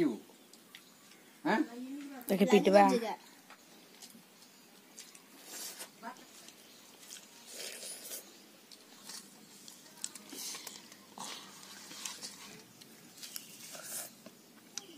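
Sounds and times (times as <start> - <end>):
soft chewing: 3.4 - 14.9
fingers mixing rice on steel plates: 4.4 - 14.9
small clicks and scrapes: 8.7 - 14.9.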